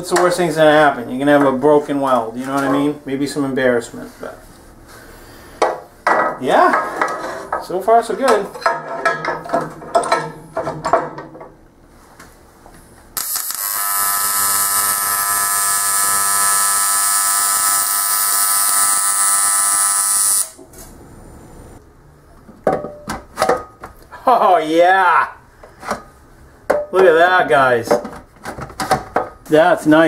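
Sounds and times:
welding arc buzz: 0:13.2 - 0:20.6.

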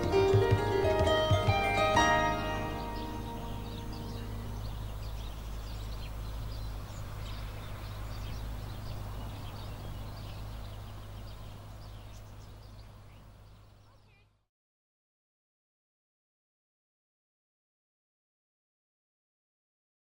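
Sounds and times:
steady low hum: 0:00.0 - 0:14.0
small birds chirping: 0:00.0 - 0:14.5.

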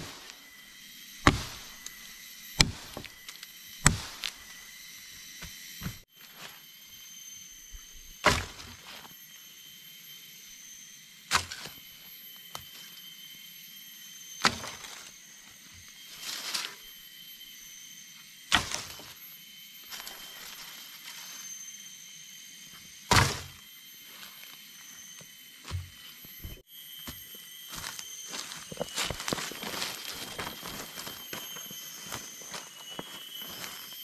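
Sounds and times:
wooden poles landing with thunk: 0:23.1 - 0:23.5.

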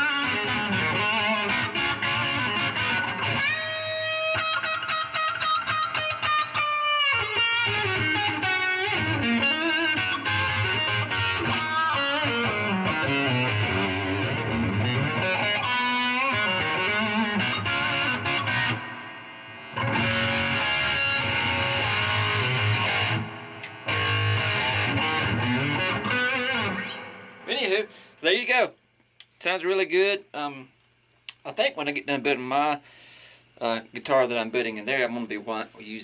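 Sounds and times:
electric guitar with bent notes: 0:00.0 - 0:28.2.

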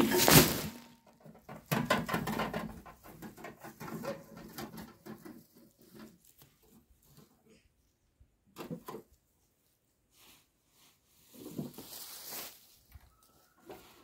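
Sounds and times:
dry leaves rustling crash: 0:00.0 - 0:01.1, 0:11.7 - 0:12.9
wheelbarrow rattling over grass: 0:00.0 - 0:06.8.

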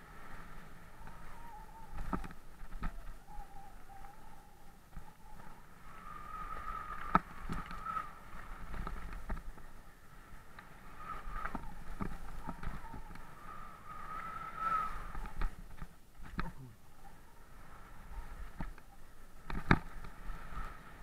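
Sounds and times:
bike tyres rumbling on gravel: 0:00.0 - 0:16.6, 0:17.7 - 0:21.0
bike rattles and knocks: 0:19.4 - 0:20.2.

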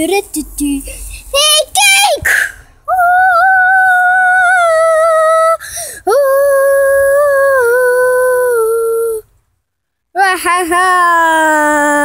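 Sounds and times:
child breathing: 0:00.8 - 0:01.3, 0:05.6 - 0:06.1
child singing long notes: 0:02.9 - 0:09.3.

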